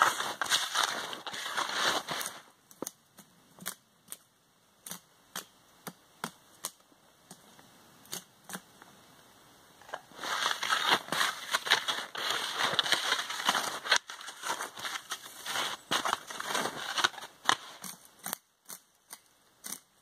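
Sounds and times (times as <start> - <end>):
skis shuffling in snow: 0.0 - 2.6, 10.1 - 17.8
wood snapping and clicking: 2.7 - 7.4.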